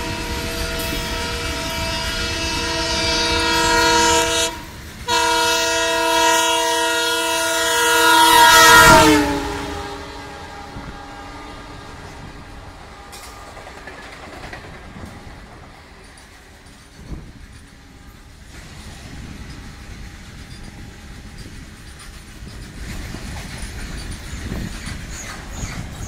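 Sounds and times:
locomotive horn blasts: 0:00.0 - 0:12.5
train wagons clattering: 0:00.0 - 0:26.0.

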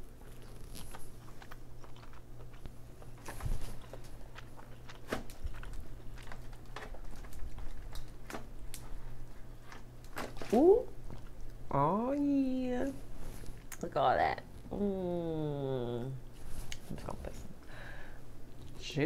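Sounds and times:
person chewing: 0:00.0 - 0:11.6, 0:13.4 - 0:13.8
crab shell cracking: 0:03.9 - 0:10.5.

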